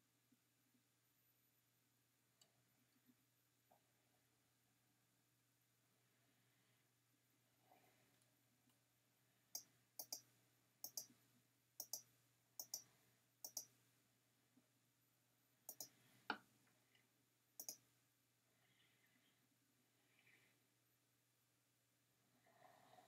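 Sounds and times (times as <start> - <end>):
computer mouse button clicking: 9.6 - 11.1, 11.8 - 12.9, 13.5 - 13.7, 15.7 - 16.0, 17.6 - 17.8.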